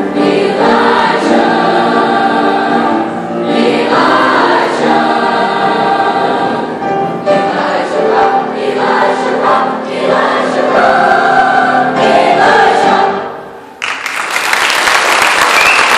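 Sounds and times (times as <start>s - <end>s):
choir singing: 0.0s - 13.7s
applause: 13.8s - 15.9s.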